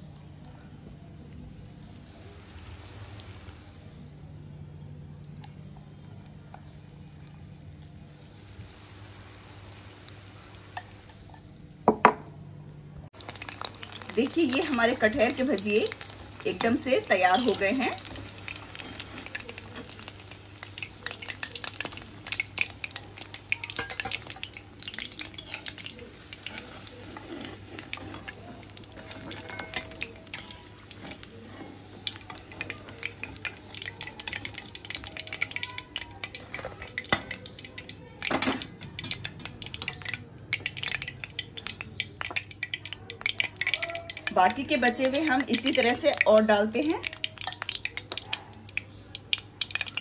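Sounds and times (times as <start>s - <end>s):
hot oil sizzling: 0.0s - 12.4s, 13.0s - 50.0s
steel spoon clinking and scraping: 23.8s - 24.5s, 25.2s - 33.6s.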